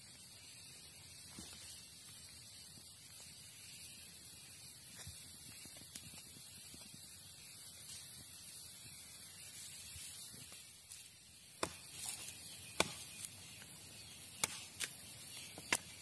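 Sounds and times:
machete chopping wooden stick: 11.6s - 13.7s, 14.3s - 16.0s.

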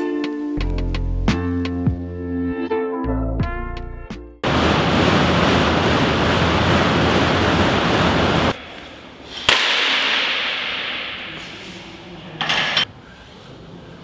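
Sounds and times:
air bike fan rush: 4.4s - 9.7s
sharp crack: 9.4s - 11.6s.

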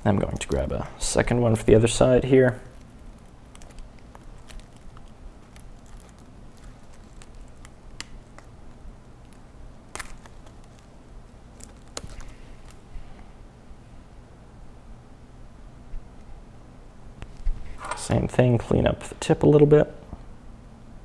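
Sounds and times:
low steady hum: 0.0s - 21.0s
paper card clicks and crackles: 2.7s - 8.5s, 9.2s - 10.9s, 11.5s - 12.8s.

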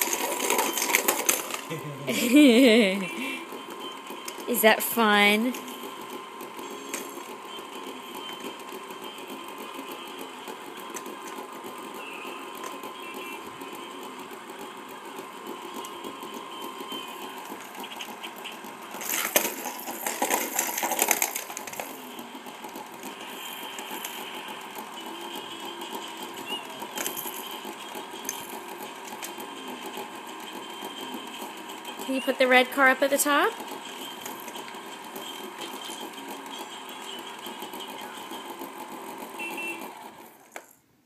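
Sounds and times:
plastic clattering: 0.0s - 1.7s, 17.4s - 22.0s
small toy motor whirring: 0.0s - 40.8s.

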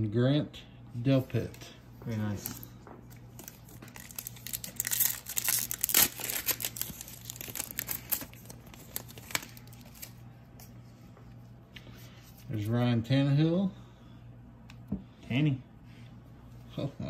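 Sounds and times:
wrapper crinkling and tearing: 2.2s - 10.2s.

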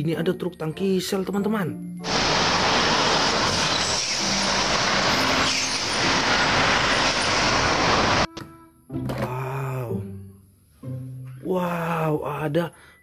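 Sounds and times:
road traffic passing: 2.0s - 8.3s
truck passing: 2.0s - 8.3s.

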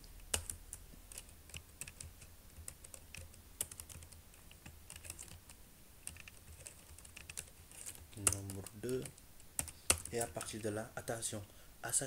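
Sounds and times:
computer keyboard typing: 0.2s - 10.8s.

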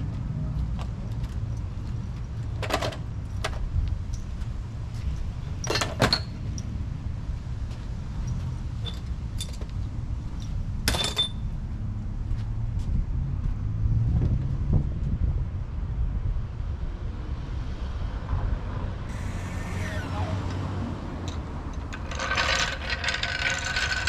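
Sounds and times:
metal tools clanking on pavement: 1.4s - 4.3s, 5.0s - 6.7s, 8.2s - 9.7s, 10.4s - 11.5s, 21.3s - 24.0s.

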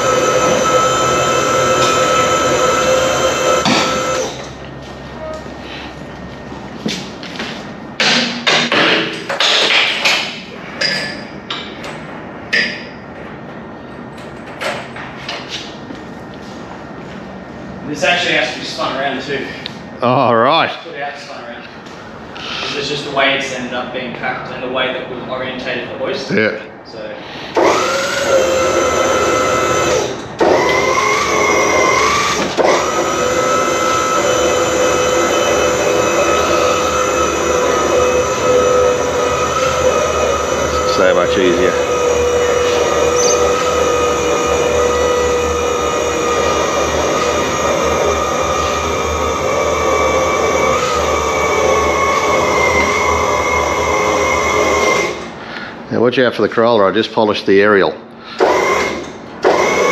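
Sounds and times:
power tool motor whining: 0.0s - 4.6s, 27.6s - 55.3s, 58.4s - 59.9s.

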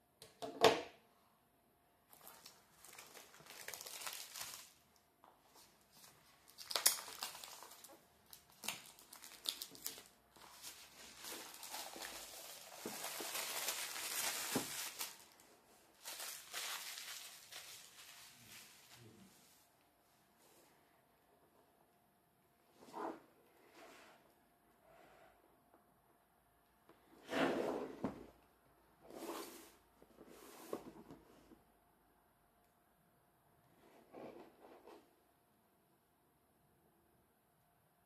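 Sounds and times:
plastic shrink wrap crinkling and tearing: 2.1s - 5.0s, 5.6s - 19.1s.

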